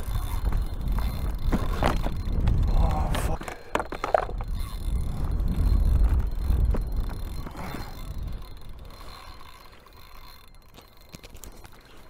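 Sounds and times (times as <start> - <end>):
strong wind on microphone: 0.0 - 9.2.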